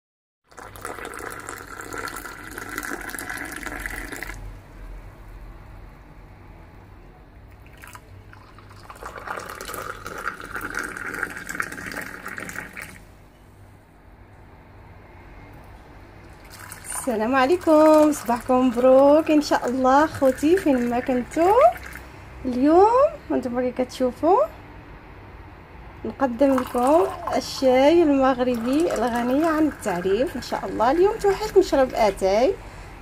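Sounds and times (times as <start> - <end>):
tea pouring into a glass: 0.5 - 4.4, 7.6 - 13.0, 16.3 - 22.0, 26.3 - 32.2.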